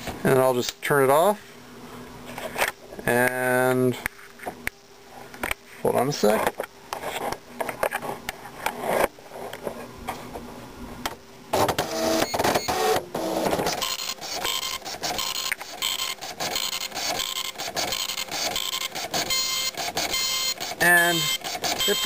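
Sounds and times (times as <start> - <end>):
printer head printing: 11.5 - 22.0
dot matrix printer starting up: 11.6 - 22.0.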